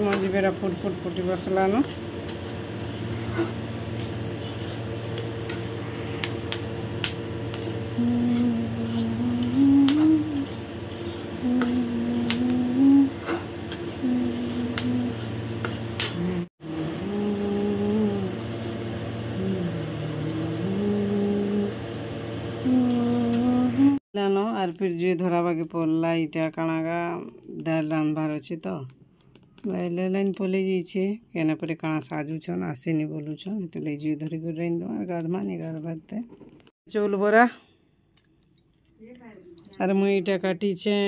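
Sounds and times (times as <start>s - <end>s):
metal spatula scraping a pan: 0.0s - 6.3s, 7.4s - 12.2s, 13.1s - 16.2s
steady low hum: 0.0s - 24.0s.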